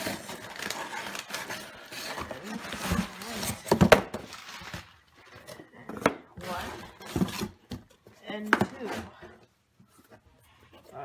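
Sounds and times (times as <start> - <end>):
cardboard rubbing and scraping: 0.0 - 3.8.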